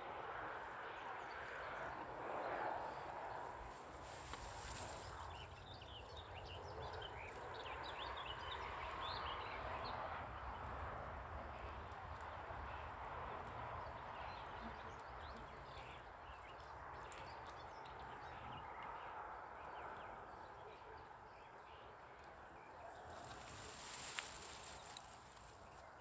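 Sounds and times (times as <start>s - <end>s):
steady hiss: 23.2s - 25.6s.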